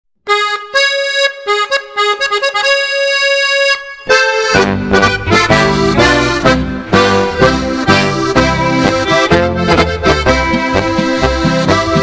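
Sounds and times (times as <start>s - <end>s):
accordion march melody: 0.2s - 12.0s
folk band playing: 4.0s - 12.0s.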